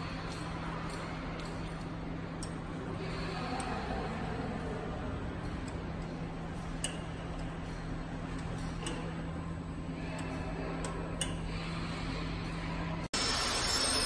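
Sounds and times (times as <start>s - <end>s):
machine humming: 5.0s - 14.0s.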